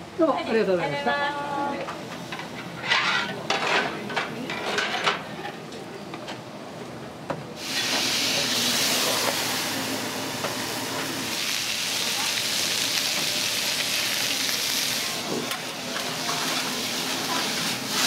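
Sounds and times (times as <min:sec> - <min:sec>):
food sizzling on griddle: 0:07.6 - 0:18.0.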